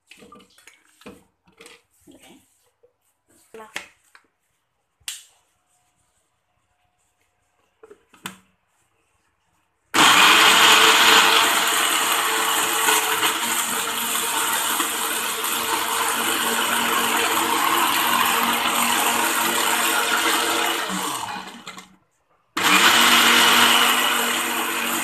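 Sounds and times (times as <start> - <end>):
electric blender grinding: 10.0 - 21.9, 22.6 - 25.0.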